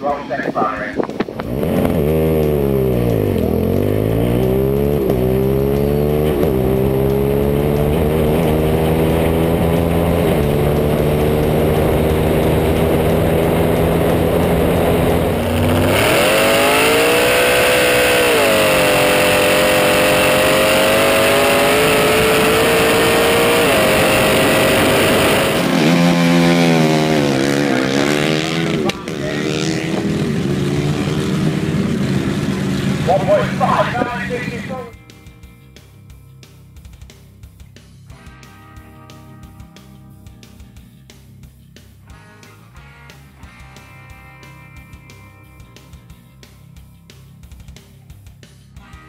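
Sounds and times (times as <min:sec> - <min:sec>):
engine running at high revs: 0:00.0 - 0:35.0.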